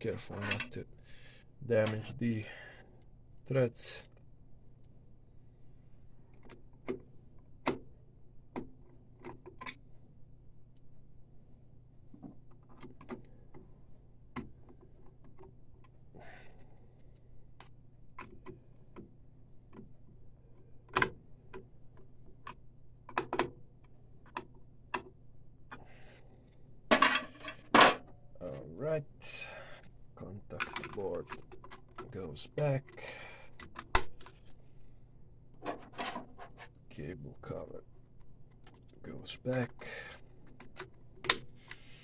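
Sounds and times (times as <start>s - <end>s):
faint low hum: 0.0s - 42.0s
plastic and metal parts clicking: 30.5s - 32.1s.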